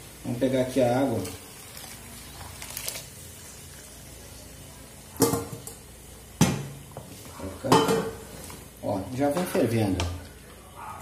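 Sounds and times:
water pouring into a pan: 0.0s - 5.8s
cookware clanking: 5.2s - 5.8s, 7.6s - 8.2s.

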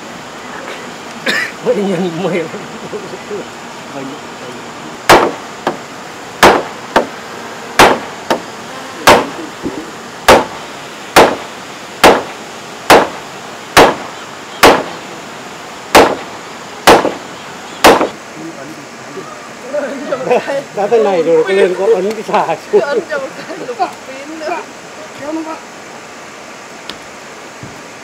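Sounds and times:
hammer striking timber: 5.1s - 5.8s, 6.4s - 7.2s, 7.8s - 9.3s, 10.3s - 10.5s, 11.2s - 13.2s, 13.8s - 14.0s, 14.6s - 15.0s, 15.9s - 17.2s, 17.8s - 18.2s.

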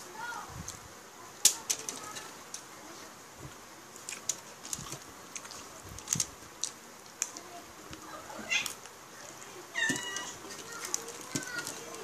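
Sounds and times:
wet chewing and smacking: 4.0s - 7.4s.

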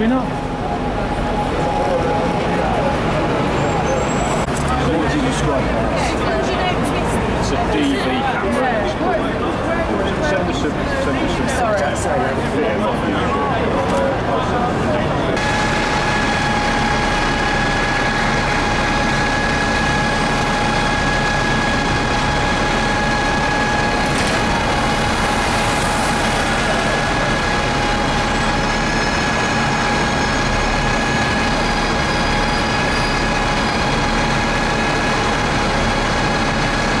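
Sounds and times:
street traffic: 0.0s - 37.0s
vehicle engine idling: 15.3s - 37.0s.

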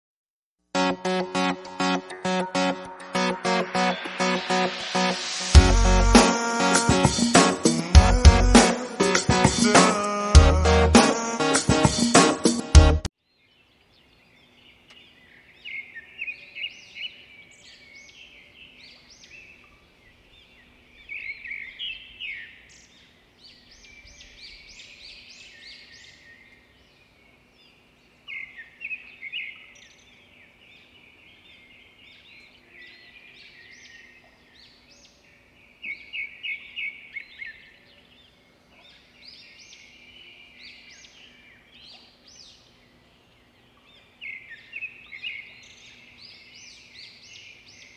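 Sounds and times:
small birds chirping: 13.2s - 47.9s.

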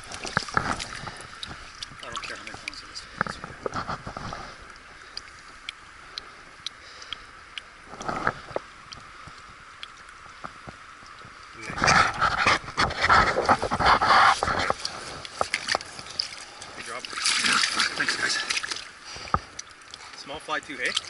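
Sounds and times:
river flowing over stones: 0.0s - 21.0s
faint clicks: 0.4s - 11.5s.

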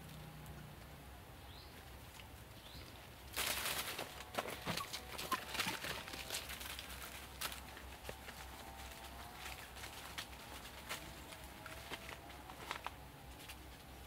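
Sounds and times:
puppy paws pattering and scratching: 1.7s - 14.0s.

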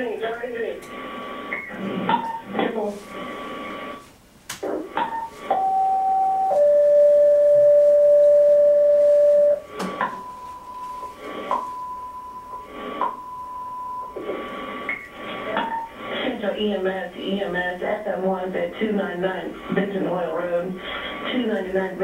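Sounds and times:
radio static bursts: 0.0s - 5.5s
two-tone pager tone: 5.0s - 14.2s.

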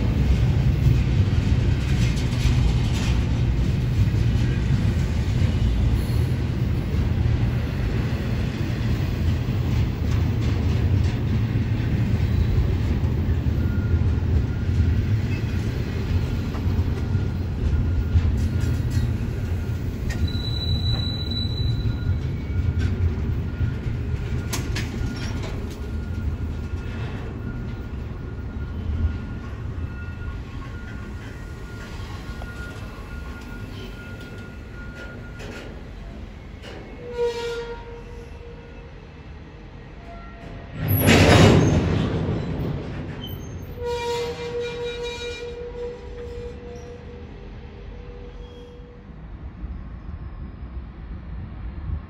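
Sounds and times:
train wheels rumbling on rail: 0.0s - 52.0s
faint wheel squeal: 17.8s - 22.8s, 48.0s - 49.0s.

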